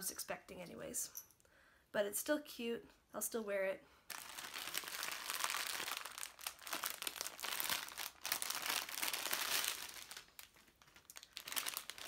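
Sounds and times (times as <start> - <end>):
plastic mailer bag crinkling: 4.1 - 12.0.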